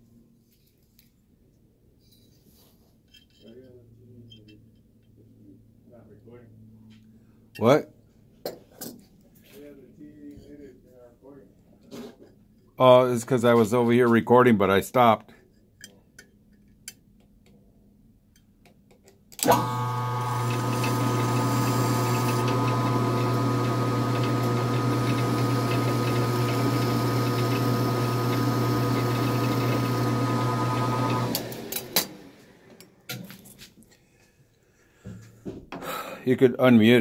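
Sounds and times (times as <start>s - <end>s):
metal lathe humming: 19.4s - 32.6s.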